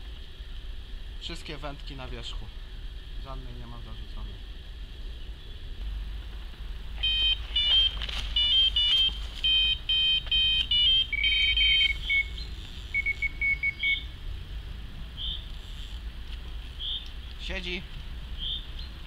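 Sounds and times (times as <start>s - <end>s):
lower-pitched bite alarm beeps: 7.0s - 14.1s
bite alarm beeping: 7.0s - 14.2s.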